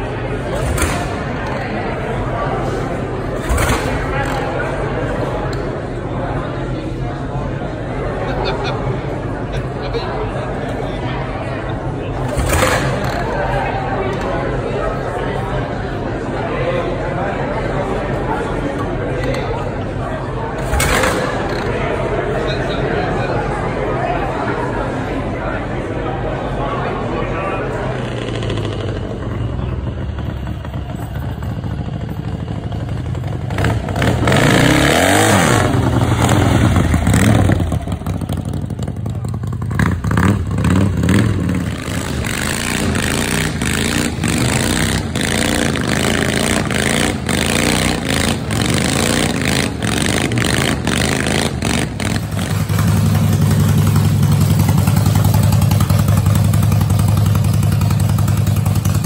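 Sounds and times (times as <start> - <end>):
motorcycle engines revving: 0.0 - 59.0
motorcycle engine idling: 27.7 - 59.0.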